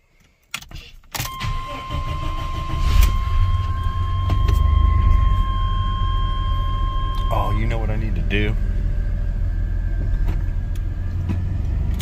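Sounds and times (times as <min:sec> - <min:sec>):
steady high-pitched tone: 0:01.4 - 0:10.7
pickup engine running: 0:01.4 - 0:12.0.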